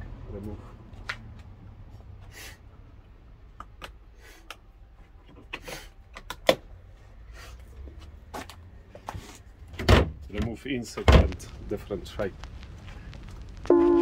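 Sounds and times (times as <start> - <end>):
low steady hum: 8.6 - 14.0.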